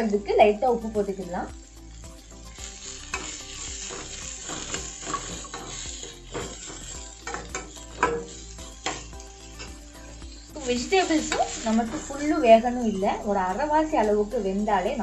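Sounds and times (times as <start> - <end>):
vegetables sizzling in hot oil: 0.0 - 15.0
metal spatula scraping a pan: 2.4 - 13.1.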